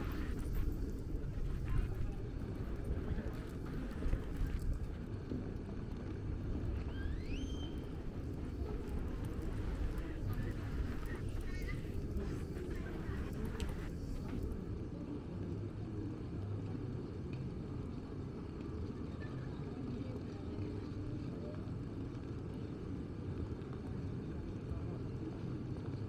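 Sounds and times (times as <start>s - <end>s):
city street traffic rumble: 0.0s - 15.2s.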